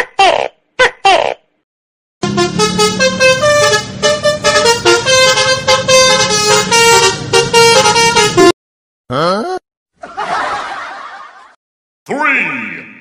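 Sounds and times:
horn playing a quick tune: 0:02.2 - 0:08.5.

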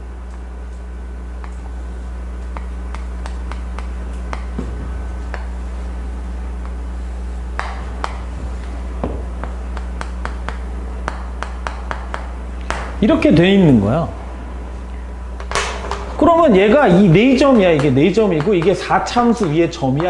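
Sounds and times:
steady low hum: 0:00.0 - 0:20.0
chalk tapping and scraping on chalkboard: 0:02.4 - 0:04.6, 0:09.4 - 0:12.3, 0:17.3 - 0:20.0.

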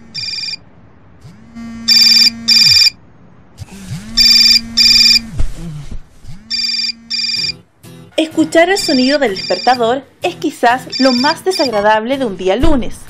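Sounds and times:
alarm clock beeping: 0:00.0 - 0:00.6, 0:01.9 - 0:03.0, 0:04.2 - 0:05.2, 0:06.5 - 0:07.6, 0:08.8 - 0:09.8, 0:10.8 - 0:11.8.

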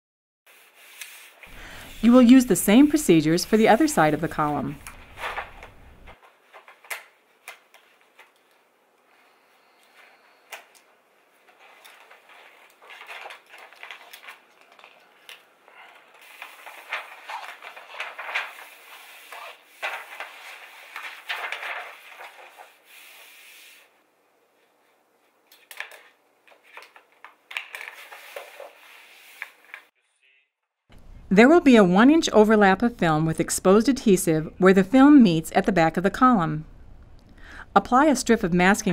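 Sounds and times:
vinyl film rustling and scraping: 0:00.5 - 0:08.7, 0:09.3 - 0:23.9, 0:25.4 - 0:30.0
paper liner peeling: 0:00.6 - 0:08.6.

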